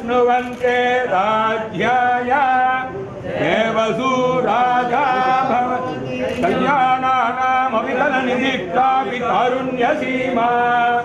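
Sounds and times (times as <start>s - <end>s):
men chanting a devotional hymn: 0.0s - 11.0s.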